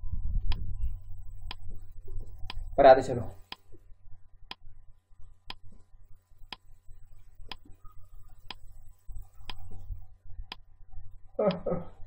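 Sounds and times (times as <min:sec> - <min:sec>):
low rumble: 0:00.0 - 0:03.0.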